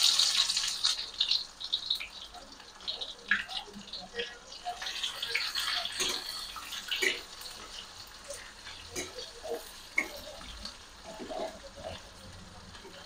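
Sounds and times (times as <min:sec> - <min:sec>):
onions sizzling in hot oil: 0:00.0 - 0:13.0
metal spatula scraping pan: 0:04.6 - 0:12.2.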